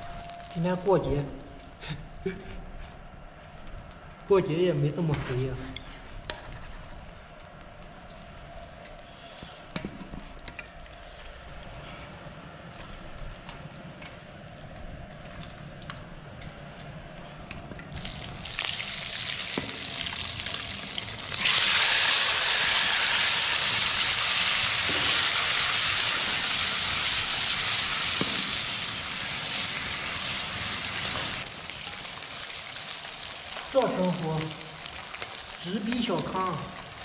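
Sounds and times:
food sizzling in a pan: 18.0s - 37.0s.

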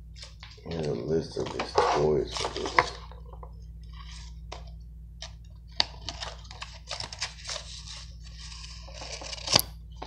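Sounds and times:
paper crinkling and rustling: 0.2s - 10.0s.

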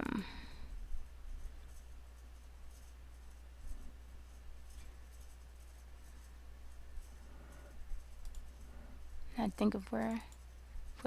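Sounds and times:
low electrical hum: 0.0s - 11.0s
computer mouse rubbing and clicking: 1.0s - 11.0s.

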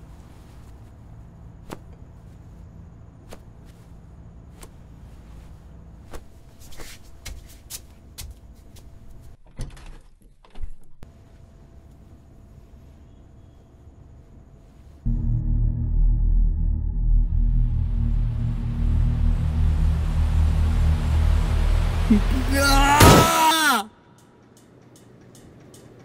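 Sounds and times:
low steady hum: 11.0s - 23.2s.

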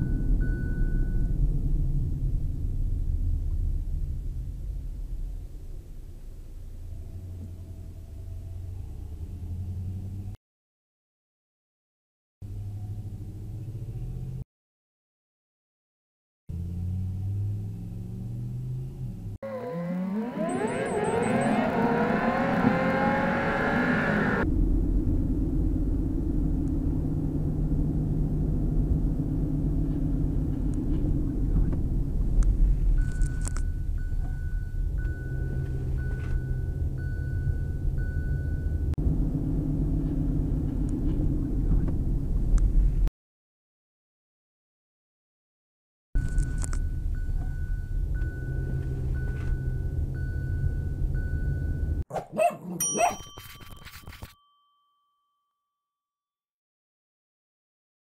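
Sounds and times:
faint high tone beeping: 0.0s - 1.4s, 32.9s - 38.9s
road noise inside car: 0.0s - 10.4s, 12.5s - 14.4s, 16.5s - 43.1s, 46.2s - 52.1s
car engine accelerating: 1.4s - 10.4s, 12.4s - 14.4s, 16.5s - 43.1s, 46.2s - 52.0s
dings and clangs: 52.8s - 54.8s.

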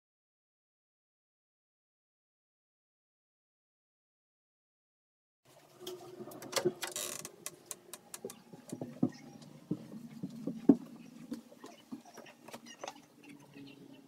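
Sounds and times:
footsteps on stairs: 8.2s - 12.1s.

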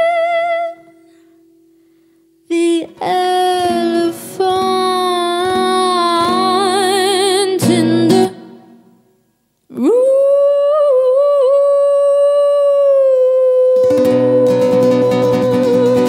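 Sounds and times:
woman singing a long note: 0.0s - 1.0s, 2.5s - 8.4s, 9.7s - 16.0s
acoustic guitar strumming: 3.6s - 9.0s, 13.8s - 16.0s.

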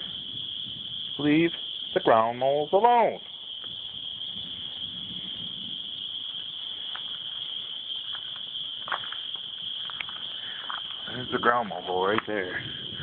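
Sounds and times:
crickets chirping: 0.0s - 13.0s
footsteps in grass and leaves: 6.4s - 11.1s.

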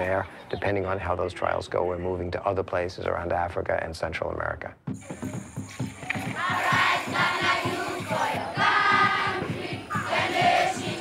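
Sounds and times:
quick steady beat: 4.8s - 11.0s
group of voices singing: 6.1s - 11.0s.

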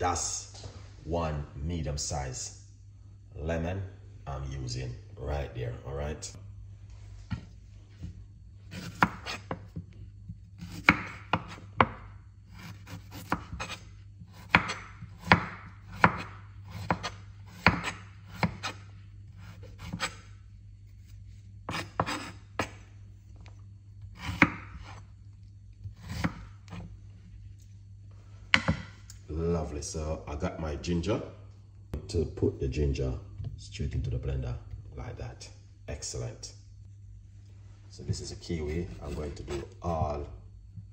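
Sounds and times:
knife chopping on wooden board: 8.7s - 9.8s, 10.6s - 18.8s, 19.4s - 20.2s, 21.7s - 22.8s, 24.2s - 25.0s, 25.9s - 26.9s, 28.5s - 29.0s.

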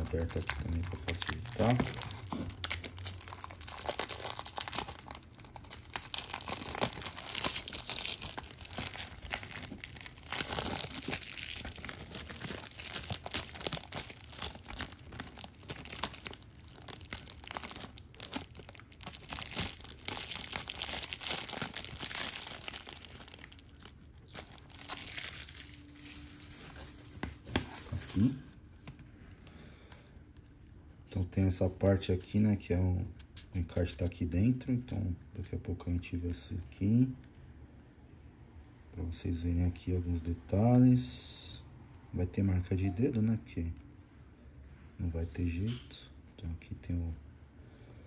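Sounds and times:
plastic wrapping crinkling and tearing: 0.0s - 28.3s.

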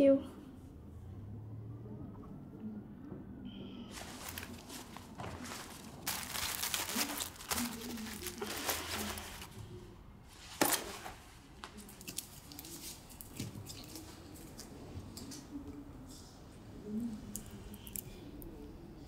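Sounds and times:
cloth and bag rustling: 3.9s - 9.6s.

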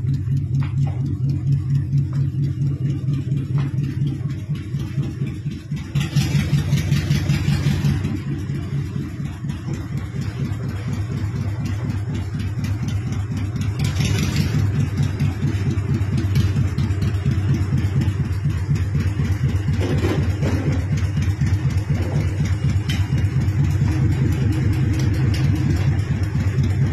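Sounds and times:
motorcycle engine rumbling: 0.0s - 26.9s.

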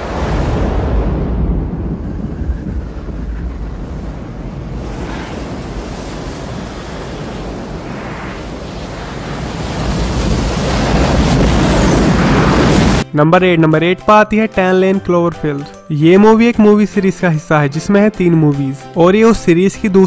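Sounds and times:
roar of rushing water: 0.0s - 13.0s
wind: 0.0s - 13.0s.

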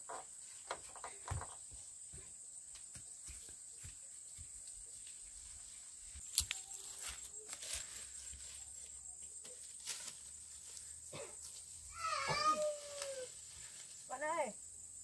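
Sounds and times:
insects buzzing: 0.0s - 15.0s
footsteps in undergrowth: 1.5s - 14.4s
rustling in undergrowth: 2.9s - 14.6s.

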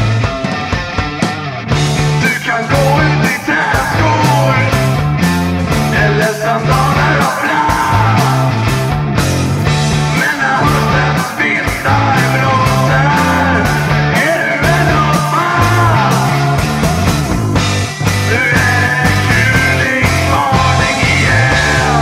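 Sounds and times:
driving bass line: 0.0s - 22.0s
rock song: 0.0s - 22.0s
steady drum beat: 0.0s - 22.0s
person singing: 2.1s - 5.0s, 5.8s - 8.8s, 10.0s - 16.8s, 18.2s - 22.0s.

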